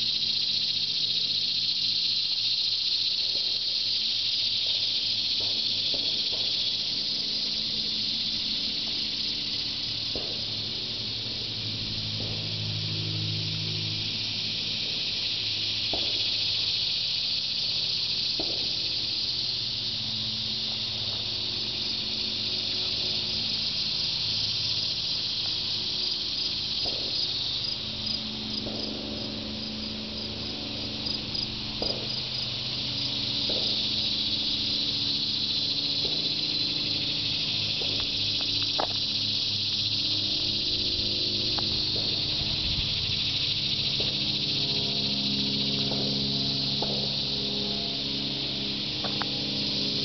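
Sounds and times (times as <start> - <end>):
cicadas buzzing: 0.0 - 50.0.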